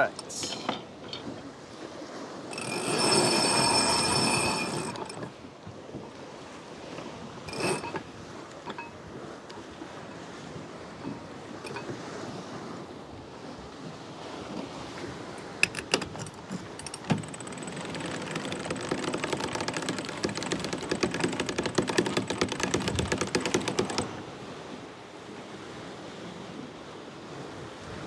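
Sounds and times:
wind and sea noise: 0.0s - 28.0s
clicks and knocks: 0.4s - 1.4s, 15.4s - 24.1s
winch pawls clicking: 2.5s - 5.3s, 7.0s - 8.0s, 15.4s - 24.2s.

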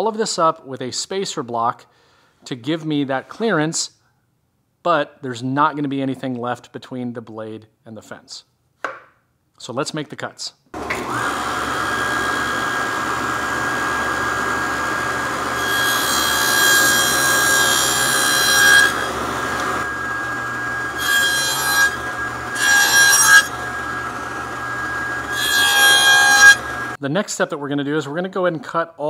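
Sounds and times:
table saw cutting plywood: 10.8s - 27.0s.

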